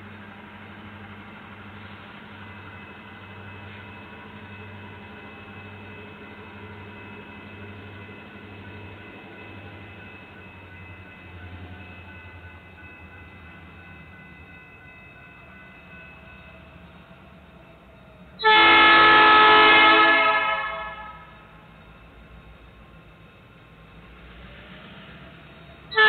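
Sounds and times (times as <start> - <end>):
locomotive air horn chord: 18.4 - 21.4.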